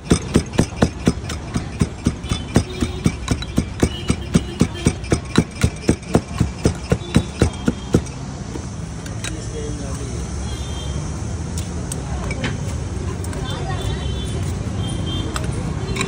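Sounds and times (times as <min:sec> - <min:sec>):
pestle knocking in steel cup: 0:00.0 - 0:08.2.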